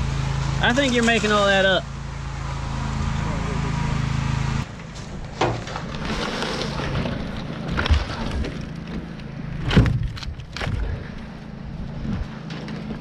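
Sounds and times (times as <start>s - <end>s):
logs knocking and scraping: 4.8s - 11.3s.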